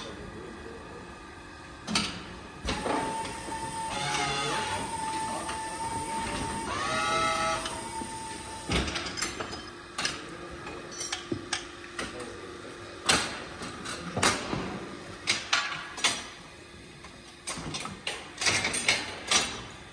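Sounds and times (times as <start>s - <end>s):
electric motor whine: 2.7s - 8.8s.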